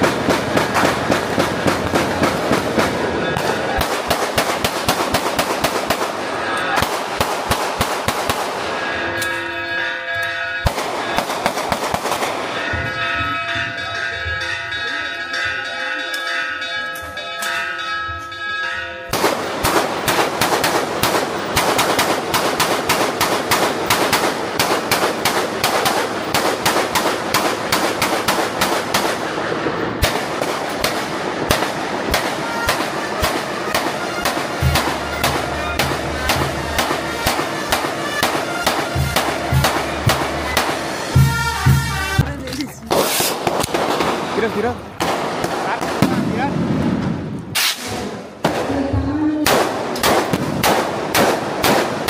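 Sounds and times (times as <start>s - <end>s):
rapid firecracker bangs: 0.0s - 9.1s, 10.6s - 13.4s, 19.1s - 48.8s, 49.4s - 52.0s
bells ringing: 8.6s - 11.4s, 12.2s - 20.2s, 32.3s - 42.8s.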